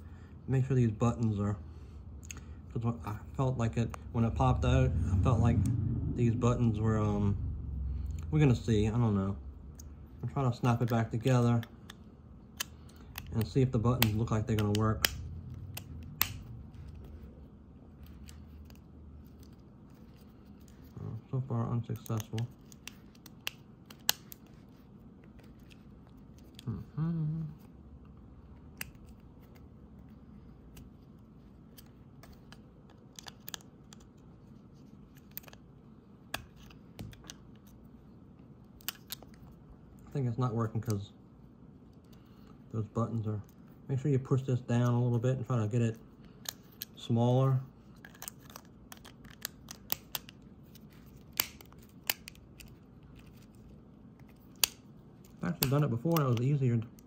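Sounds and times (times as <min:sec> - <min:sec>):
person humming: 0:26.6 - 0:27.7.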